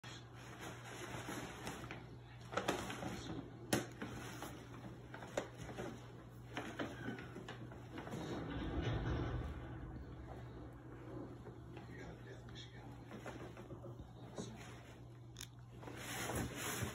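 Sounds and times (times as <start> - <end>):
paper bag crinkling and rustling: 0.3 - 8.8.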